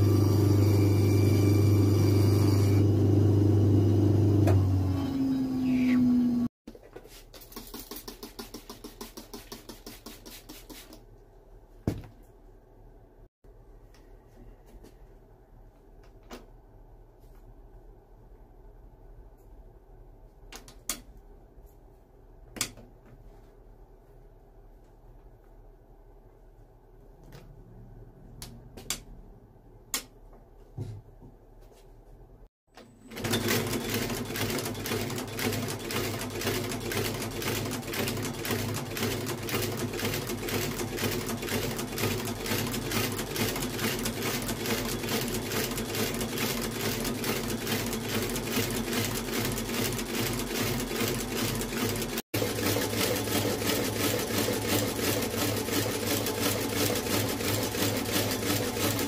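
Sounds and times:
stitching machine clatter: 33.1s - 59.0s.

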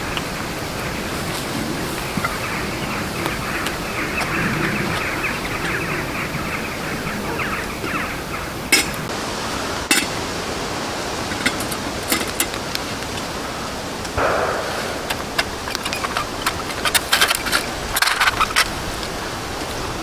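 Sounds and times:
steady rushing noise: 12.9s - 17.9s
sharp click: 14.2s - 17.0s.

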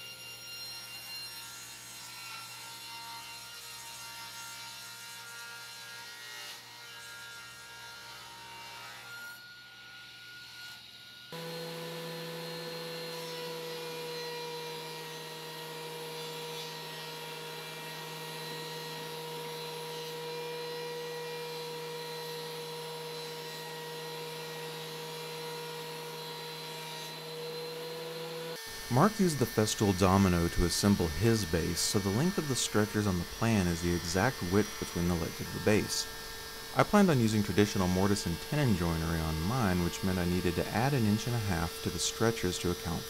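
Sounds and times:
table saw ripping wood: 11.4s - 43.0s
thickness planer whining: 11.4s - 43.0s.

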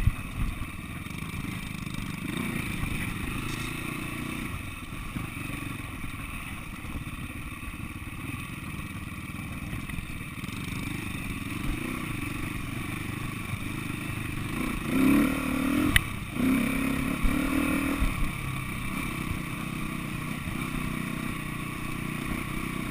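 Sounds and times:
motorcycle engine running: 0.0s - 22.9s.

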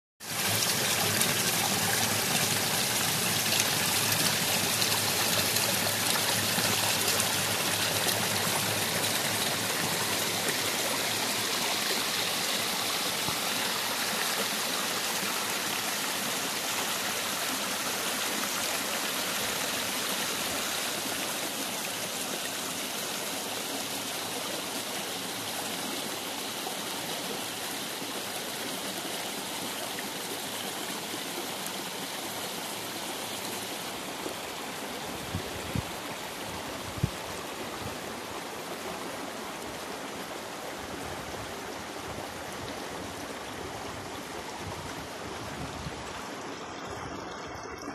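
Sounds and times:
water pouring down cascade: 0.2s - 28.7s
stream rushing over stones: 0.2s - 47.9s.

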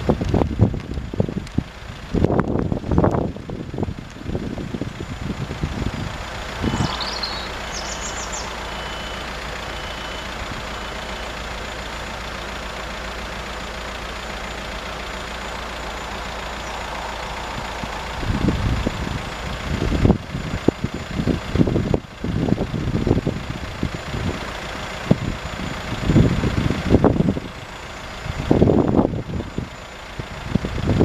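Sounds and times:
wind buffeting microphone: 0.0s - 9.5s, 15.6s - 27.6s
vehicle engines idling: 0.0s - 31.0s
high bird chirps: 6.4s - 11.3s, 15.7s - 19.3s.

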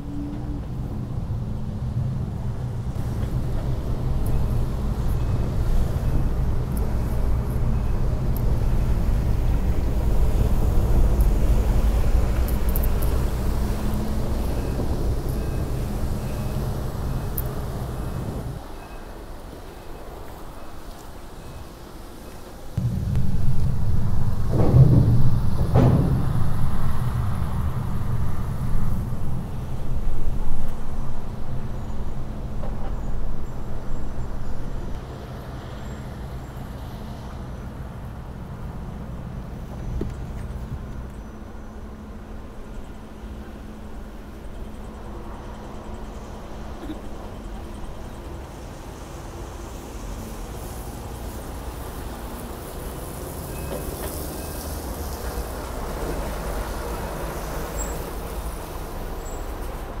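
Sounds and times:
road traffic rumble: 0.0s - 60.0s
heavy vehicle passing: 22.8s - 30.4s
low hum: 22.8s - 31.3s.

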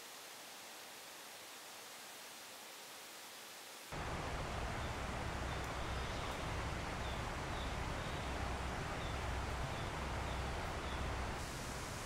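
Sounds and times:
low uneven rumble: 4.0s - 11.4s.

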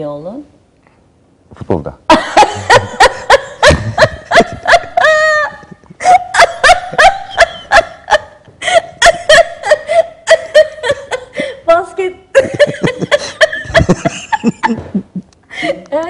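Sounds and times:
person laughing high-pitched: 2.3s - 11.3s, 12.3s - 15.3s.

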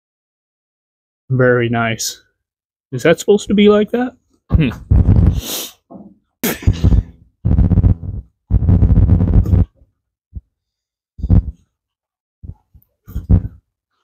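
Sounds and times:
man making wordless vocal sounds: 4.5s - 5.4s.

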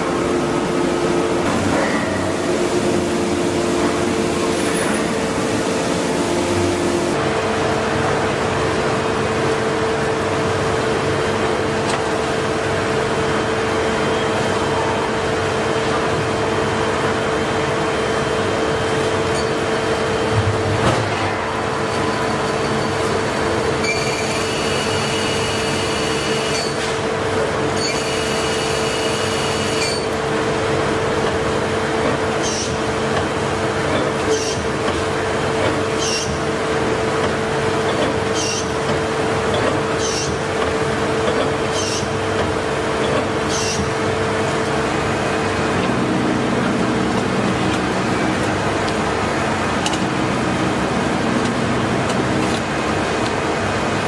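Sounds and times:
lathe machine hum: 0.0s - 20.4s.

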